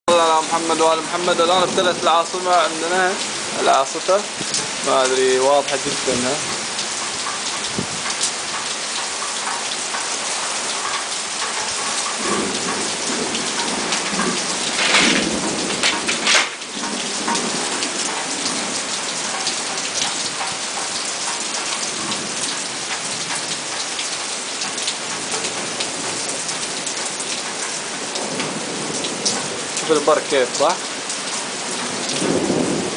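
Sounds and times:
heavy rain on pavement: 0:00.0 - 0:32.9
thunder rolling: 0:12.1 - 0:19.3, 0:31.8 - 0:32.9.

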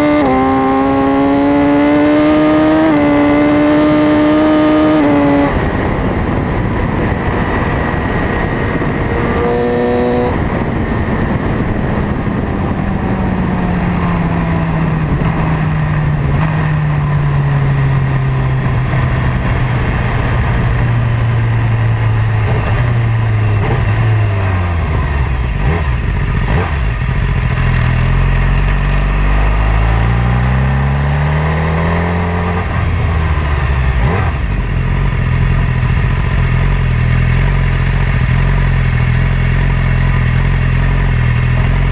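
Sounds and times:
wind rush: 0:00.0 - 0:27.5
motorcycle engine: 0:00.0 - 0:41.9.

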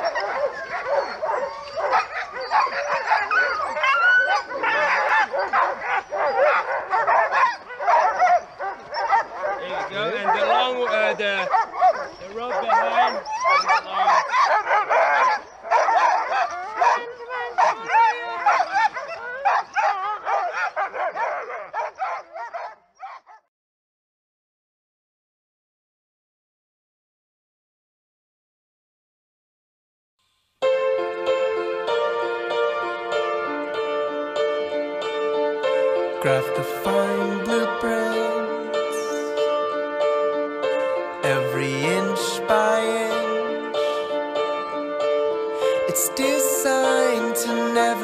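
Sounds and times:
dogs whining: 0:00.0 - 0:23.4
dogs barking and yelping: 0:00.0 - 0:23.5.

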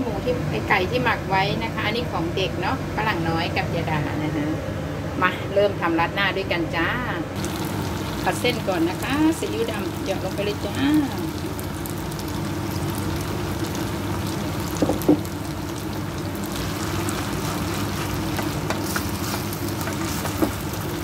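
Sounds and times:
steady low hum: 0:00.0 - 0:21.0
noodles sizzling in a pan: 0:07.4 - 0:21.0
knock: 0:14.8 - 0:15.2.

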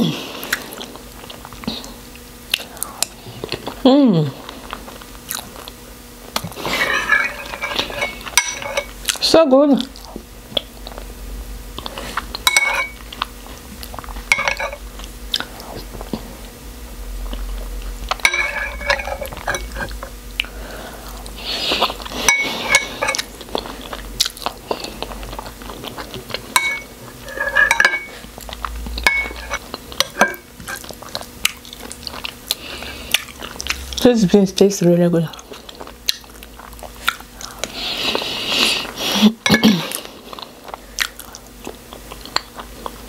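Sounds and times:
close chewing: 0:00.4 - 0:03.8, 0:04.4 - 0:06.8, 0:18.9 - 0:34.7, 0:35.3 - 0:43.0
metal spoon clinking on bowls: 0:06.8 - 0:08.9, 0:12.4 - 0:13.0, 0:14.3 - 0:14.8, 0:18.2 - 0:20.0, 0:22.3 - 0:23.3, 0:26.5 - 0:28.2, 0:29.0 - 0:30.8.

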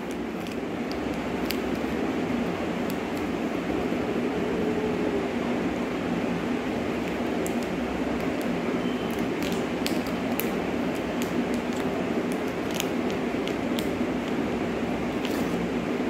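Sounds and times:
plastic sachet crinkling: 0:00.0 - 0:02.0, 0:06.9 - 0:14.5
fan-like whirr: 0:00.0 - 0:16.0.

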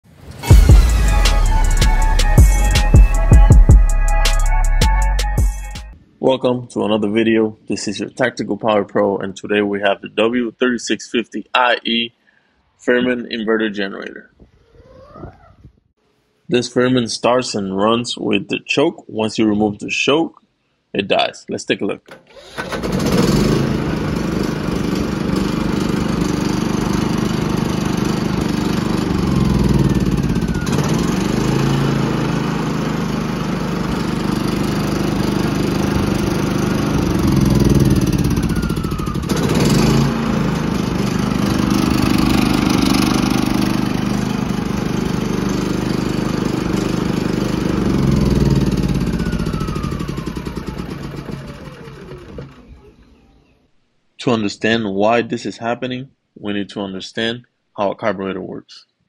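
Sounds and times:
generator engine running: 0:00.4 - 0:06.0, 0:22.1 - 0:53.2.

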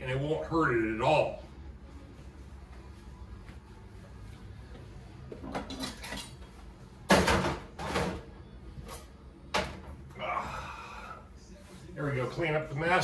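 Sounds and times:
low room hum: 0:00.0 - 0:13.0
kitchen clatter and rustle: 0:05.4 - 0:08.3.

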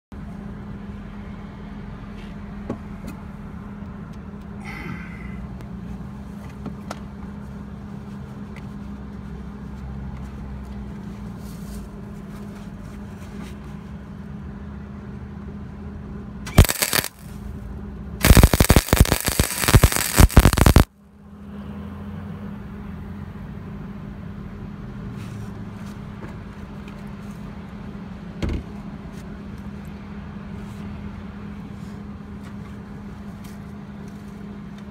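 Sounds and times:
steady low hum: 0:00.2 - 0:21.2
welder arcing crackle: 0:16.5 - 0:17.4, 0:18.2 - 0:20.9.

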